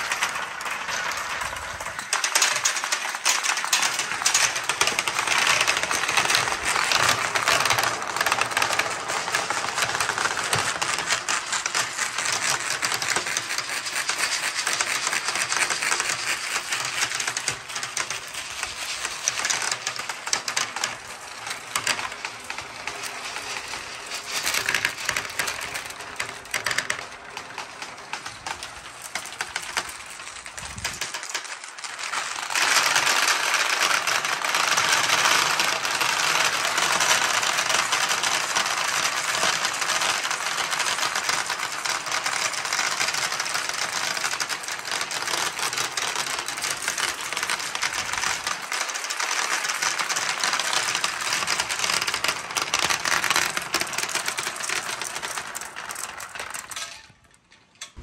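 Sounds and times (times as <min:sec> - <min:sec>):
glass marbles rolling and clattering: 0:00.0 - 0:58.0.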